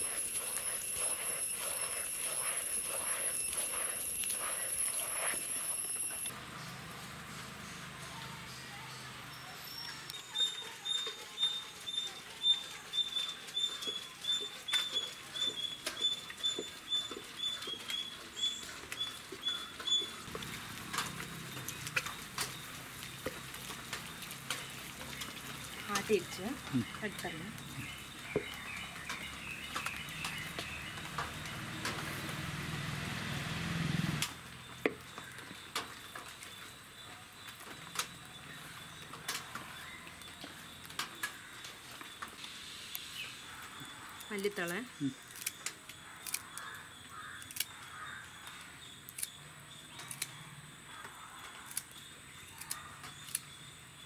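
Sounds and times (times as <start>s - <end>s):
high-pitched chirps: 0.0s - 6.3s
knocks and scrapes scooping flour: 0.0s - 6.3s
stone grinder rumbling: 0.0s - 6.3s.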